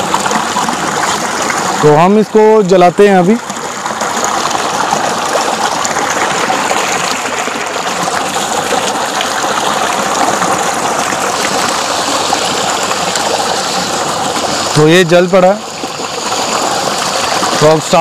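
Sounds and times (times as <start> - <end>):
water gushing into a concrete tank: 0.0 - 18.0.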